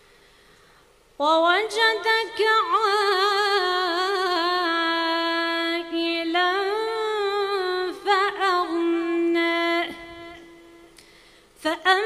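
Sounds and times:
woman's melodic recitation: 1.2 - 11.0, 11.6 - 12.0.

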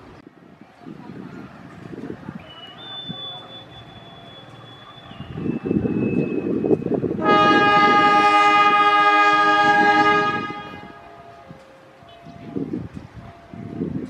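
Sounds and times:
train rumble: 0.0 - 14.0
locomotive horn blast: 7.1 - 11.4.

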